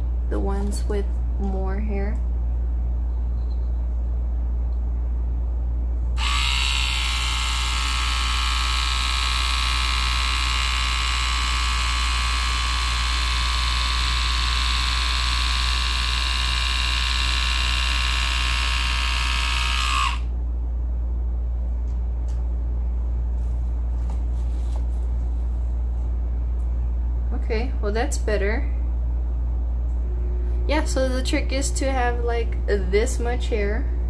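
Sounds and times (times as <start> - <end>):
low hum: 0.0 - 34.0
hair trimmer motor whining: 6.2 - 20.3.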